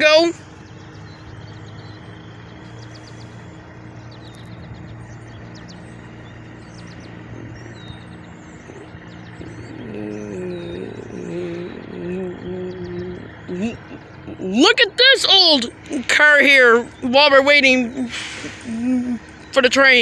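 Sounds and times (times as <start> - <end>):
distant engine humming: 0.0 - 20.0
small birds chirping: 0.0 - 20.0
person speaking: 8.7 - 20.0.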